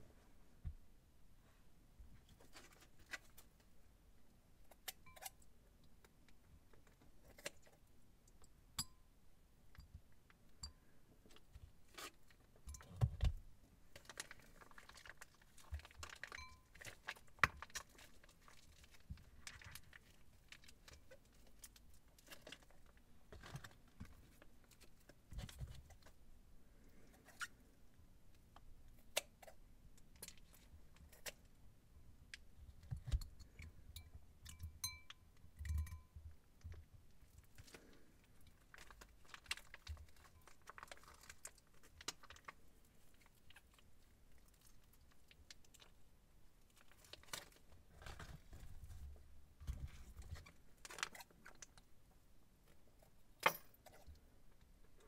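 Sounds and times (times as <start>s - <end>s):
plastic piping bag crinkling: 13.9s - 25.2s, 37.4s - 46.0s.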